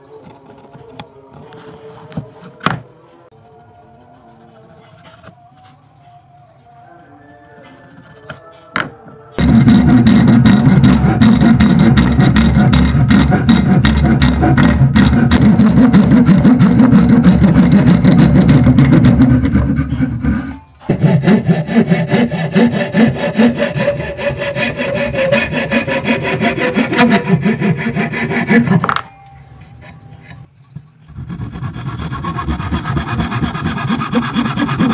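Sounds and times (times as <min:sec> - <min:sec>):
hand saw cutting wood: 0:09.4 - 0:29.0, 0:31.1 - 0:34.9.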